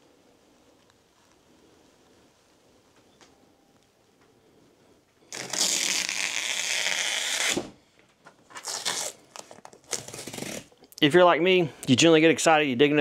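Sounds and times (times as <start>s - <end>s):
packing material rustling: 5.2s - 7.6s, 8.3s - 10.9s
packing material rasping rip: 5.3s - 7.7s, 8.5s - 10.8s.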